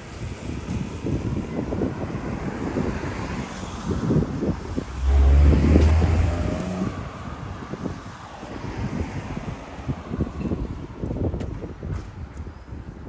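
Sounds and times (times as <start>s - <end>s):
wind buffeting microphone: 0.0s - 13.0s
vehicle passing with engine drone: 2.3s - 10.3s.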